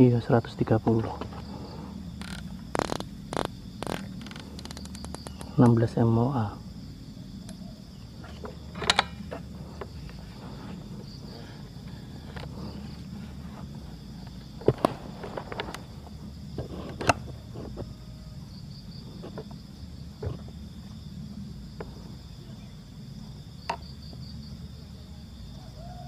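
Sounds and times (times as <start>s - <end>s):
insects trilling: 0.0s - 26.0s
handling knocks and clicks: 8.2s - 10.2s.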